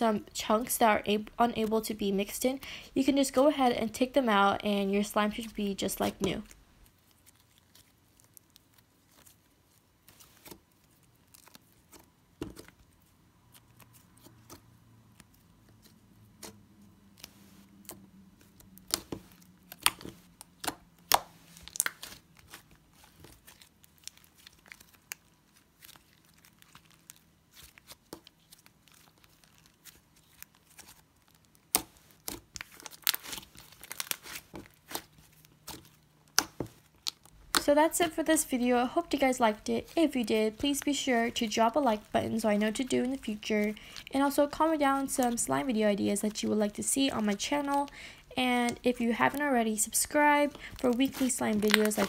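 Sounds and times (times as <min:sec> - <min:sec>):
sticky slime clicks and crackles: 0:17.2 - 0:38.2, 0:50.0 - 0:52.0.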